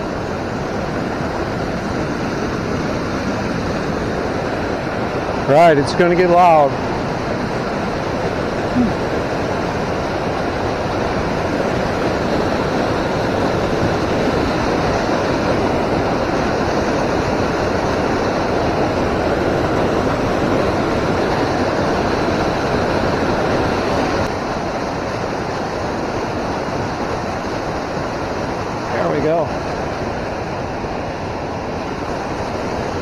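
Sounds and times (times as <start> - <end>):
river rushing over rocks: 0.0 - 33.0.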